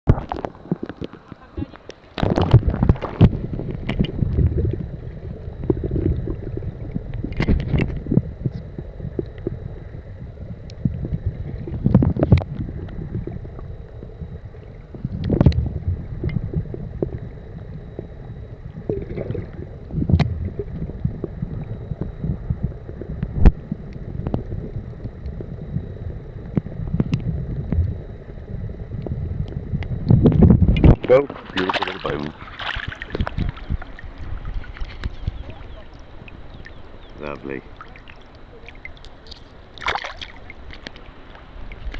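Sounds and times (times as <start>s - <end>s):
underwater water sloshing: 0.1s - 41.9s
splashes and knocks: 30.8s - 33.8s, 39.8s - 41.0s.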